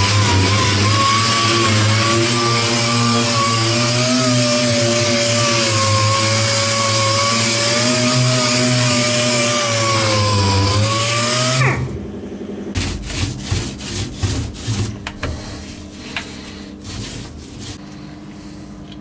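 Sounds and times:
air sander whining: 0:00.0 - 0:12.8
paintbrush rubbing and knocking: 0:12.8 - 0:17.8.

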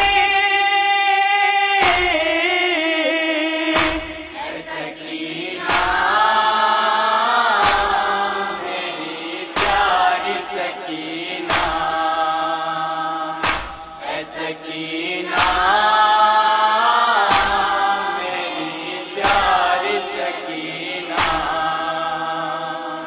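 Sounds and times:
men chanting together: 0:00.0 - 0:23.0
chest-beating strikes: 0:03.7 - 0:04.7, 0:05.6 - 0:06.3, 0:07.5 - 0:12.3, 0:13.4 - 0:14.6, 0:15.3 - 0:15.8, 0:17.3 - 0:17.8, 0:19.1 - 0:20.3, 0:21.1 - 0:21.6.

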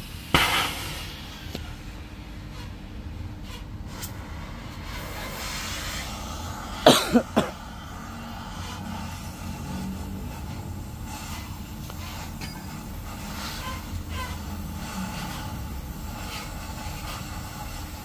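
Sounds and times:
cutting torch hissing: 0:00.0 - 0:18.0
person coughing: 0:06.8 - 0:07.6.

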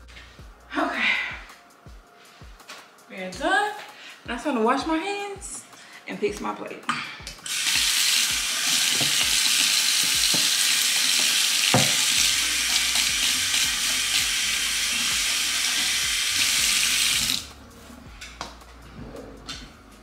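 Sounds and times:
tap running into sink: 0:07.7 - 0:13.6
knock: 0:11.7 - 0:12.0.

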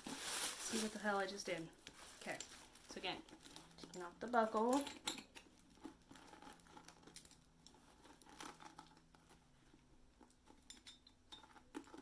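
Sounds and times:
fingers working a buckle: 0:03.2 - 0:12.0.

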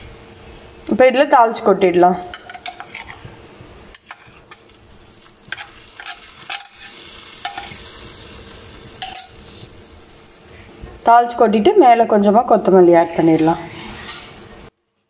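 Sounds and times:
metal utensils clicking: 0:02.3 - 0:03.2, 0:05.5 - 0:07.8, 0:09.0 - 0:09.4
hot ghee sizzling: 0:02.3 - 0:14.7.

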